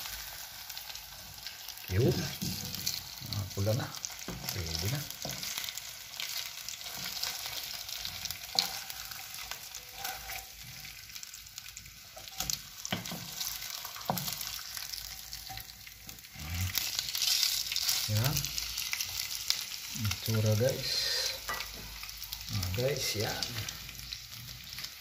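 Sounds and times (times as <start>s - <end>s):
chicken sizzling in hot oil: 0.0s - 25.0s
wooden spatula scraping a pan: 4.2s - 11.0s, 12.1s - 18.1s.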